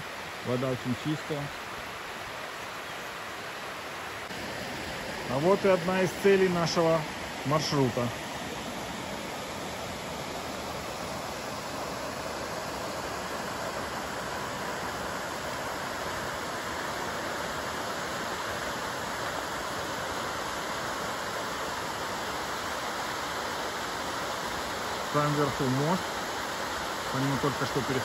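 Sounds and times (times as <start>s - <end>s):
small waterfall rushing: 0.0s - 28.0s.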